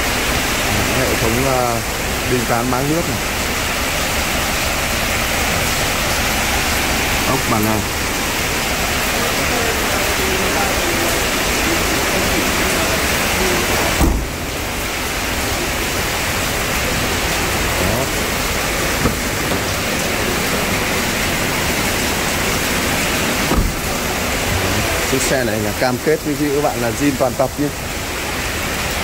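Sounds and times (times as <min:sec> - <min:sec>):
rain on a metal roof: 0:00.0 - 0:29.0
thump: 0:14.0 - 0:14.4, 0:23.5 - 0:23.9.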